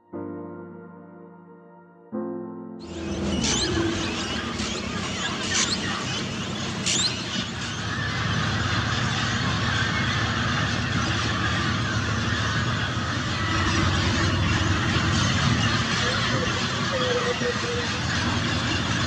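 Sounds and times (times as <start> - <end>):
parrots screeching: 2.9 - 19.0
low steady rumble: 3.0 - 19.0.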